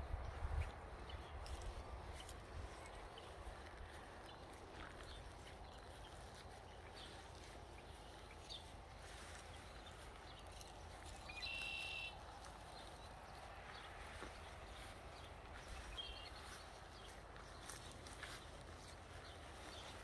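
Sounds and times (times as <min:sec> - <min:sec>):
faint background noise: 0:00.0 - 0:20.0
small bird chirping and trilling: 0:05.2 - 0:12.2, 0:15.6 - 0:20.0.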